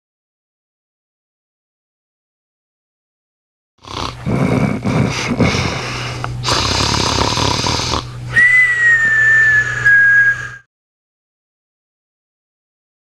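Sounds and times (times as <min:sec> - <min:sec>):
man snoring: 0:03.8 - 0:08.2
low steady hum: 0:04.1 - 0:10.6
whistling out-breath: 0:08.3 - 0:10.7.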